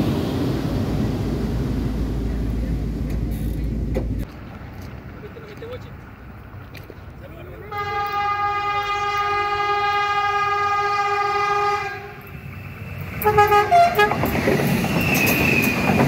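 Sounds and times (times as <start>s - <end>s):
train rumbling past: 0.0s - 16.0s
train horn blasts: 7.7s - 12.2s, 13.2s - 14.3s.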